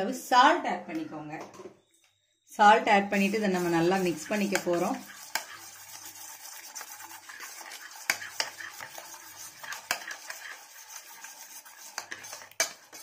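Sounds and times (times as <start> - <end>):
metal spoon stirring paste: 2.9 - 13.0.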